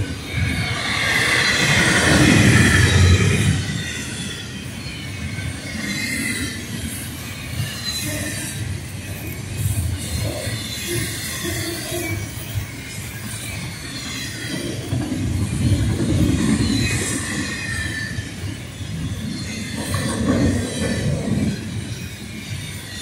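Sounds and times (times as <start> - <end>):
high-pitched wheel squeal: 0.0 - 14.8
train wheels rumbling on rails: 0.0 - 23.0.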